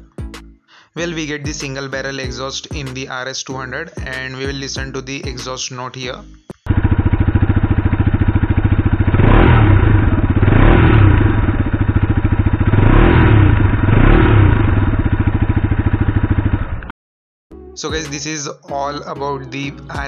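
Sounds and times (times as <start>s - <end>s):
motorcycle throttle blips: 6.6s - 16.9s
motorcycle engine idling: 6.7s - 16.9s.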